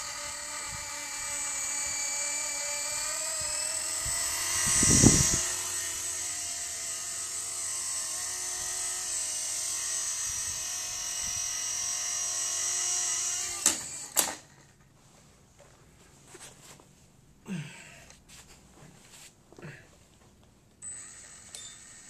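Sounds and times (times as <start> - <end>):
small electric helicopter rotor whine: 0.0 - 14.6, 20.8 - 22.0.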